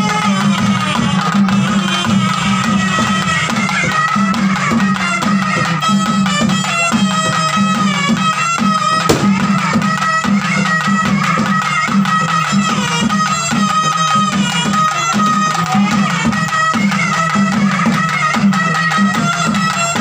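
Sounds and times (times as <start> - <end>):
quick steady drumming: 8.8 - 10.4
sharp knock: 9.0 - 9.6.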